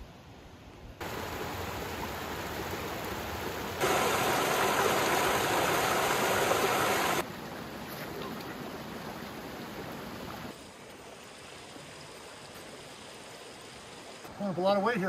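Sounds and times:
water rushing over boulders: 1.0 - 11.1.

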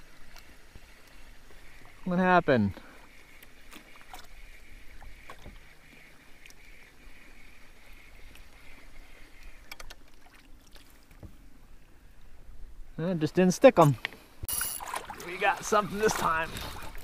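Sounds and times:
water lapping at hull: 0.0 - 12.8, 13.8 - 17.0
fishing reel whirring: 14.5 - 17.0.

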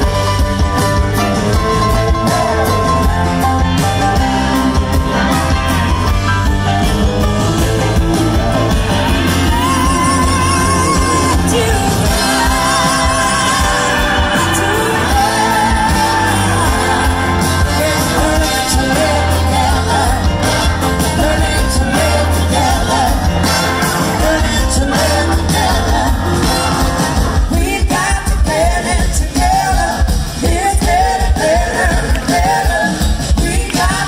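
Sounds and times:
live rock band playing: 0.0 - 34.0
woman singing: 9.4 - 23.3.

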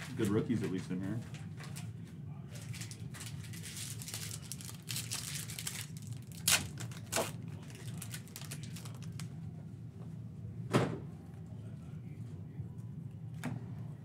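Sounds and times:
steady low hum: 0.0 - 14.0
cards rustling: 2.6 - 9.3
wrapper crinkling: 2.6 - 9.3
wrapper ripping open: 2.6 - 9.3.

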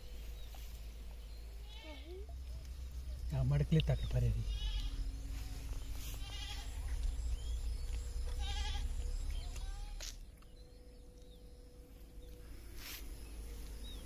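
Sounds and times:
goat bleating: 1.6 - 2.2, 4.4 - 5.0, 6.1 - 6.8, 8.3 - 10.1.

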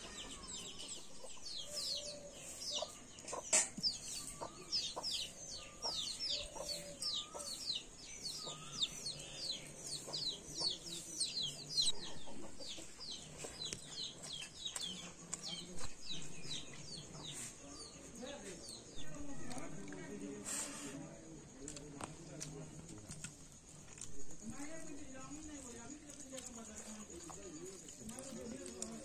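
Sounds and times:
chickens clucking: 0.0 - 17.8.

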